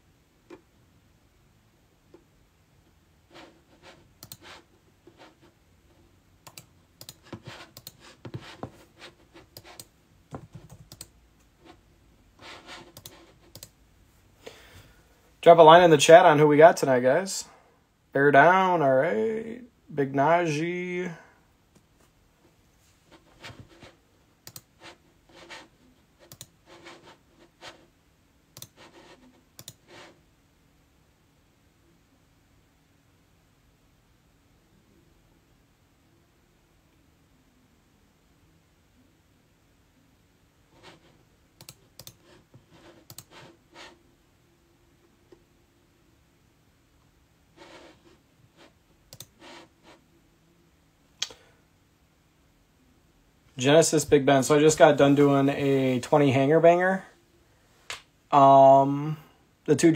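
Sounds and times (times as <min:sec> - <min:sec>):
computer keyboard typing: 0:06.4 - 0:08.8, 0:09.4 - 0:11.1, 0:12.4 - 0:13.7, 0:28.6 - 0:29.9, 0:41.6 - 0:43.5, 0:49.1 - 0:49.6.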